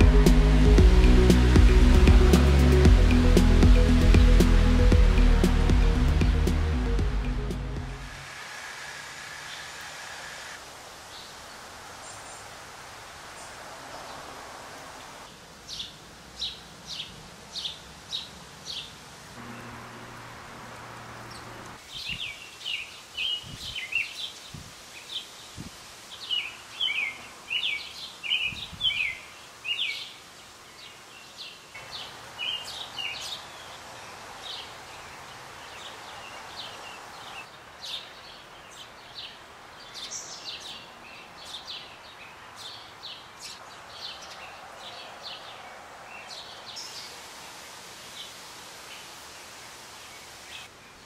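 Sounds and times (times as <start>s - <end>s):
soft low thumps: 0.0s - 8.1s
steady outdoor hiss: 0.0s - 51.0s
sparrows chirping: 15.7s - 20.4s, 21.0s - 47.2s.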